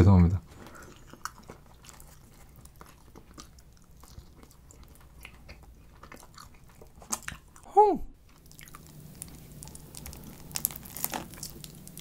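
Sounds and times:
pizza slices pulled apart crackling: 9.2 - 12.0.

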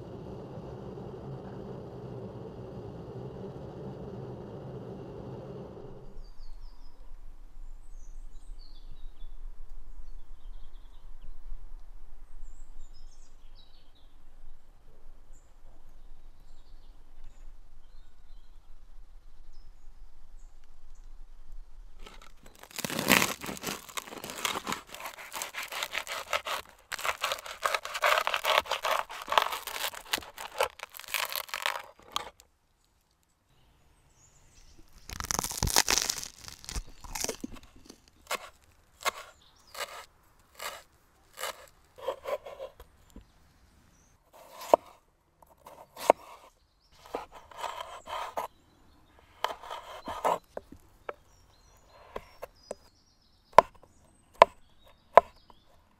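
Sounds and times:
knife sawing through crusty bread: 22.2 - 32.4, 35.2 - 42.8.

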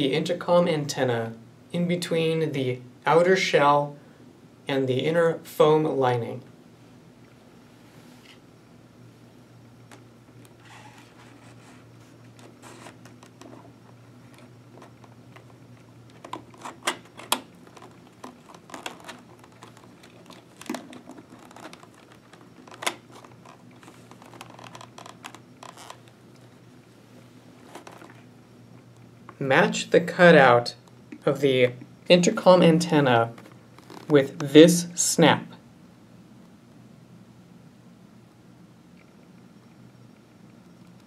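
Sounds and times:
faint low hum: 0.0 - 41.0
plastic and fabric rustling: 10.6 - 28.3, 33.3 - 34.2.

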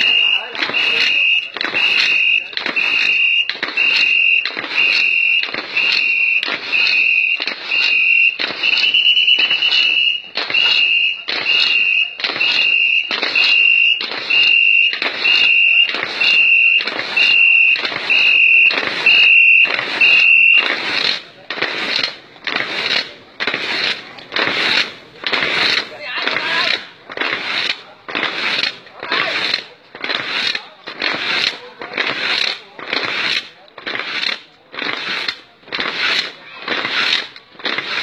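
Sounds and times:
whistle blasts: 0.0 - 20.7
paddle strokes rush: 0.0 - 38.0.

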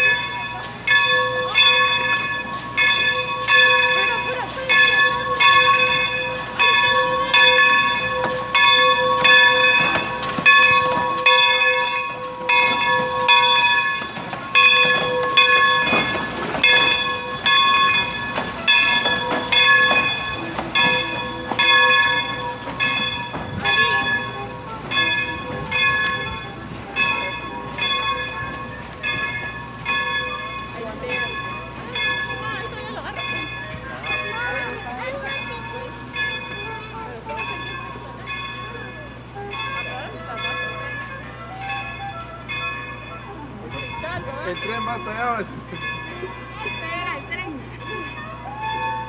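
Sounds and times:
locomotive bell ringing: 0.0 - 49.0.

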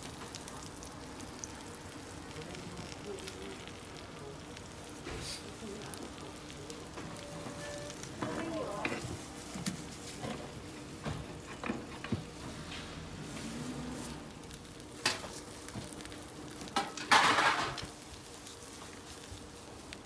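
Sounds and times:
food sizzling in a pan: 0.0 - 20.0
burst of hiss: 5.0 - 5.6
metal pans and utensils clicking: 15.0 - 15.4, 16.6 - 18.0.

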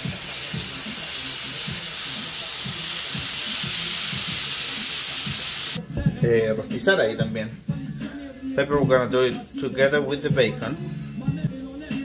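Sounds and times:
bacon sizzling in a skillet: 0.0 - 5.8.

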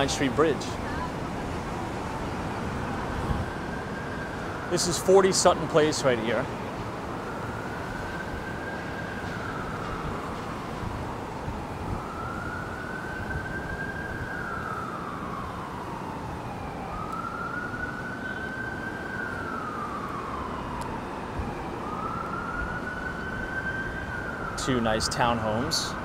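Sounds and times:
city traffic noise: 0.0 - 26.0
emergency vehicle siren wailing: 0.0 - 26.0.

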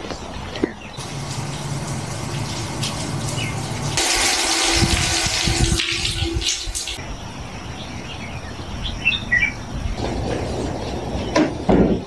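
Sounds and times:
shower spray splashing: 1.0 - 7.0.

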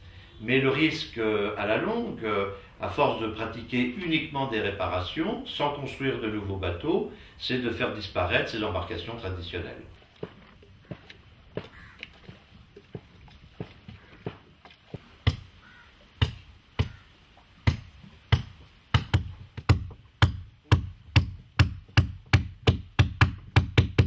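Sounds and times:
hand tool knocking on wood: 17.6 - 24.0.

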